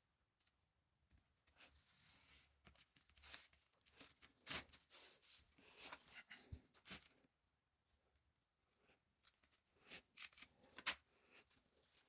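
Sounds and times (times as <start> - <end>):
rustling and scraping of strip: 1.4 - 7.2, 9.2 - 12.0.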